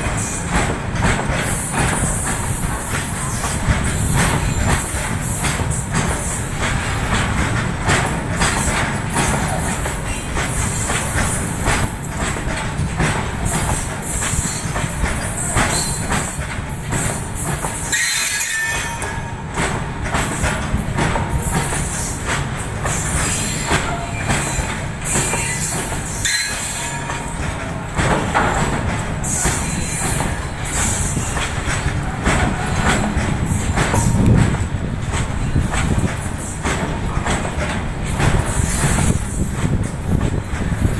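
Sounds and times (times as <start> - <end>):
wheels clattering over rail joints: 0.0 - 40.9
high-pitched wheel squeal: 17.9 - 19.2.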